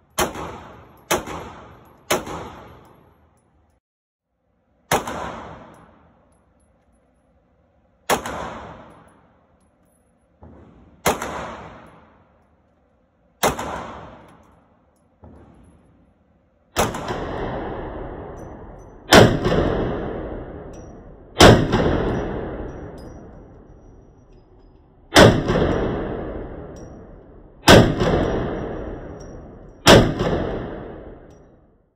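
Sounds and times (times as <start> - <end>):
pistol shots echoing indoors: 0.0 - 3.2, 4.6 - 24.0, 25.1 - 31.8
faint gunshots: 10.5 - 11.9.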